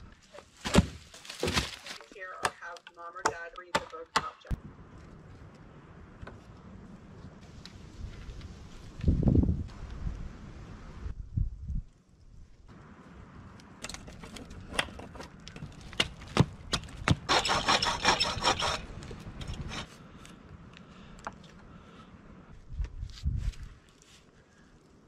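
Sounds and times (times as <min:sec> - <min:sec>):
wood scraping and crackling: 0:00.0 - 0:02.2, 0:13.8 - 0:20.4
hatchet chopping wood: 0:00.6 - 0:01.8, 0:02.4 - 0:04.4, 0:13.8 - 0:18.8
knife whittling wood: 0:17.3 - 0:18.9.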